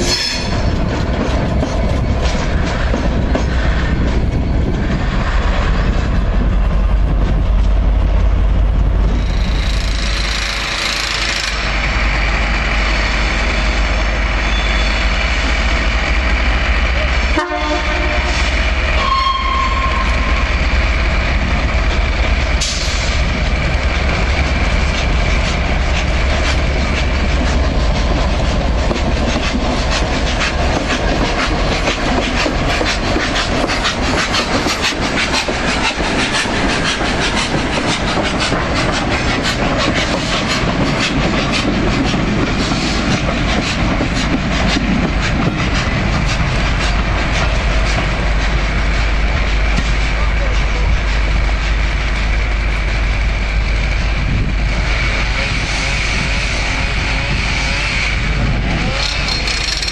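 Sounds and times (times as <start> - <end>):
diesel locomotive engine: 0.0 - 59.9
wheels clattering over rail joints: 57.8 - 59.9.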